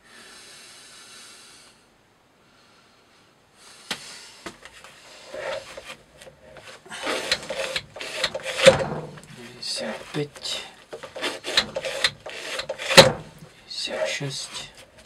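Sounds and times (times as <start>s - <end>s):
rope handling clicks and rubbing: 4.5s - 15.0s.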